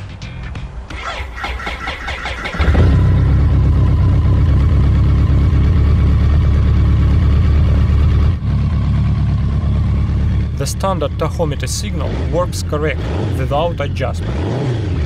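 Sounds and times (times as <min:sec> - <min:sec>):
motorcycle starter cranking: 0:00.9 - 0:03.0
motorcycle engine running: 0:02.4 - 0:15.0.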